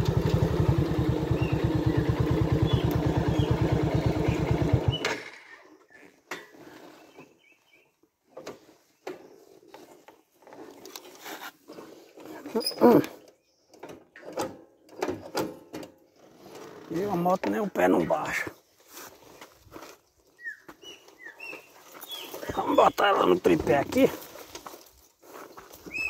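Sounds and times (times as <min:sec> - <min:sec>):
motorcycle engine running: 0:00.0 - 0:05.2.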